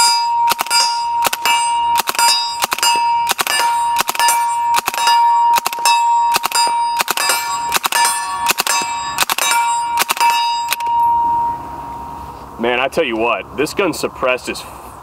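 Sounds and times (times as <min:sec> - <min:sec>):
steel plate ringing: 0:00.0 - 0:12.4
suppressed gunshots: 0:00.5 - 0:10.8.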